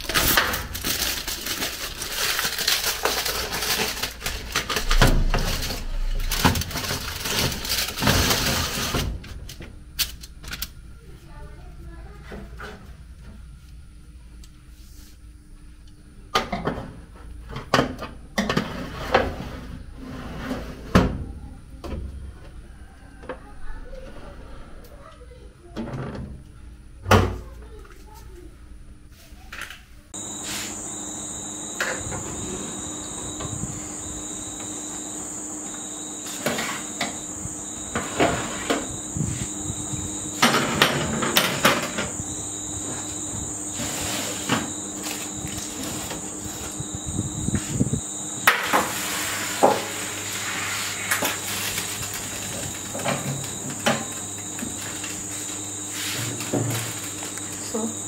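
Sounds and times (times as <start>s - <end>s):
high insect trill: 30.2s - 58.0s.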